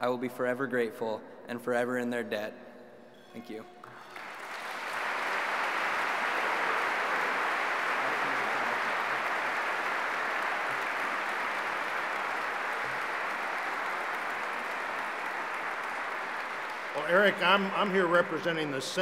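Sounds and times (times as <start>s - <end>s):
audience applauding: 3.8s - 19.0s.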